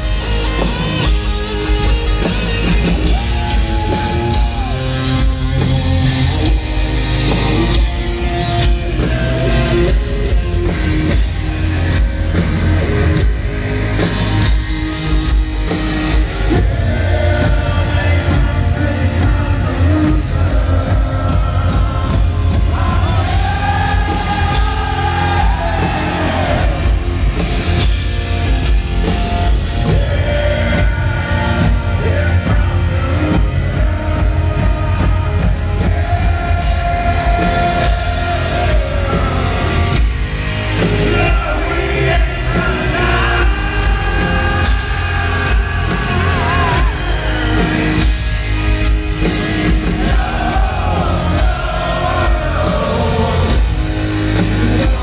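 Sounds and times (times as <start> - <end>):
bass guitar: 0.0 - 55.0
distorted electric guitars: 0.0 - 55.0
drums: 0.0 - 55.0
man singing lead: 7.5 - 12.1, 16.3 - 27.0, 29.7 - 40.1, 40.7 - 48.2, 49.2 - 55.0.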